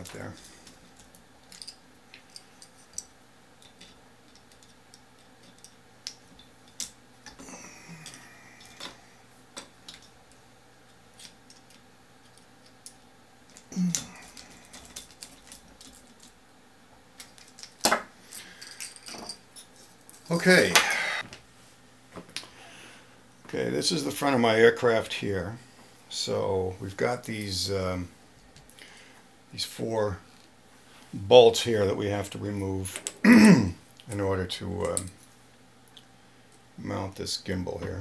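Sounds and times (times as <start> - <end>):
metal parts clicking and tapping: 0.0 - 7.4, 8.0 - 9.0, 9.6 - 10.2, 11.1 - 16.4.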